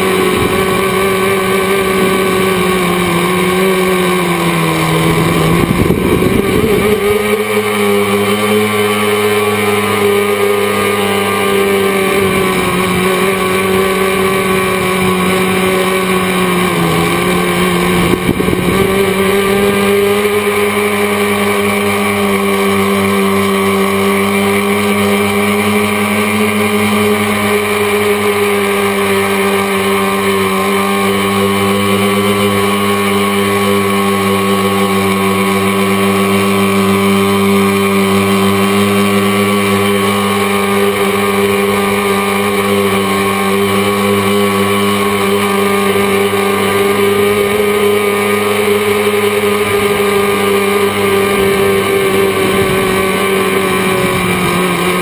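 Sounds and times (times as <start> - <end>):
wind noise on microphone: 0.0 - 10.6, 11.6 - 22.1, 49.6 - 55.0
drone propellers droning: 0.0 - 55.0.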